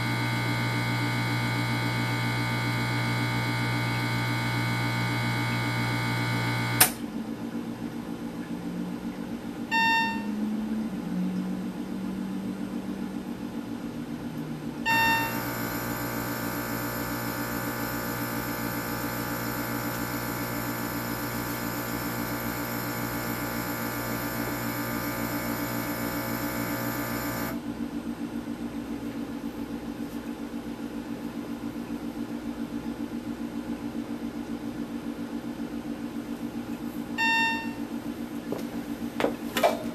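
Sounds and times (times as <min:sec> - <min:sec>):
low electrical buzz: 0:00.0 - 0:39.9
sharp click: 0:06.8 - 0:07.0
short beeps: 0:09.7 - 0:10.4, 0:14.9 - 0:15.4, 0:37.2 - 0:37.8
air pump running: 0:15.0 - 0:27.6.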